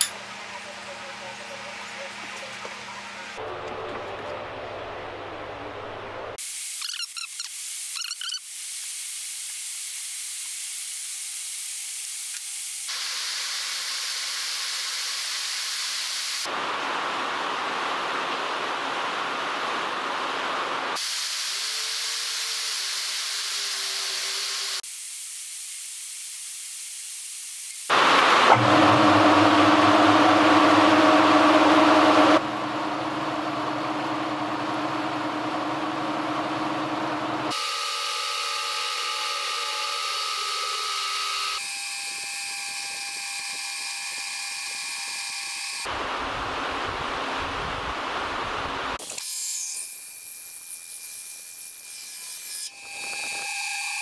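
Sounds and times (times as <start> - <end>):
end mill cutting steel: 0.0 - 4.6, 27.9 - 41.8
machine hum: 27.9 - 40.9.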